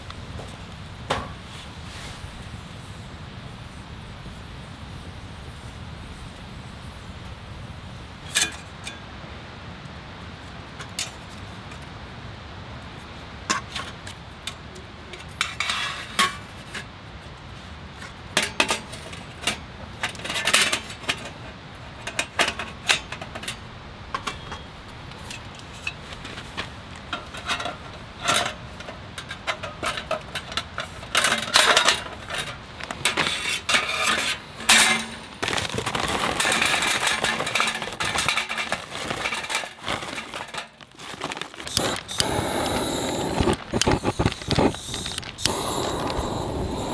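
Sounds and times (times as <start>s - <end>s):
charcoal rattling into steel box: 18.3s - 46.9s.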